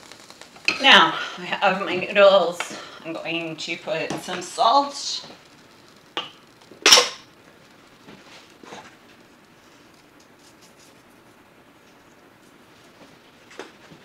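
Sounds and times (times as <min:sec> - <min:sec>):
salt shaker hissing shake: 0:00.0 - 0:01.4.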